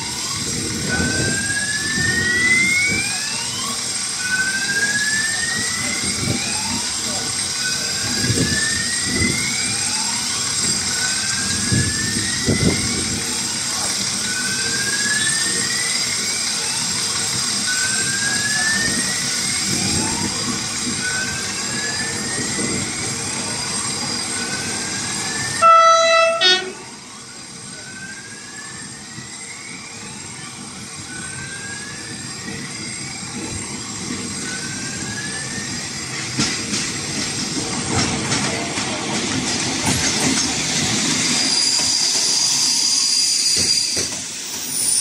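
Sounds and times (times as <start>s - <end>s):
diesel railcar engine: 0.0s - 45.0s
high squeal of braking train: 0.0s - 45.0s
train horn blasts: 25.6s - 26.9s
wheels clacking over rail joints: 36.1s - 41.2s.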